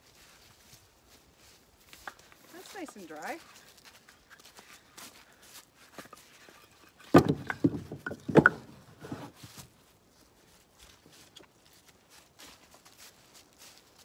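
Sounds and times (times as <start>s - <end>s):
faint footsteps: 0.0s - 14.0s
dry wood clattering onto pile: 5.9s - 9.5s.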